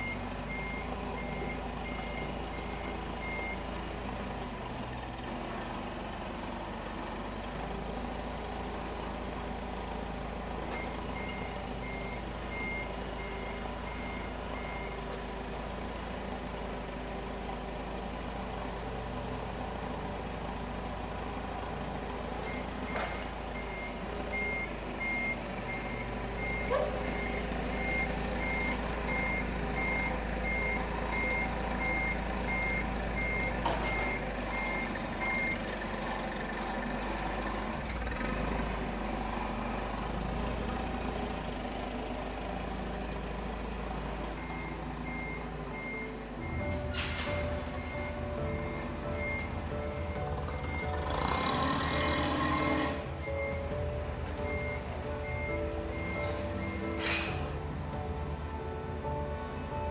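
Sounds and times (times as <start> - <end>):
reversing alarm beeping: 0.0 - 4.0, 10.7 - 15.0, 22.5 - 35.6, 44.3 - 57.4
low engine hum: 0.0 - 59.9.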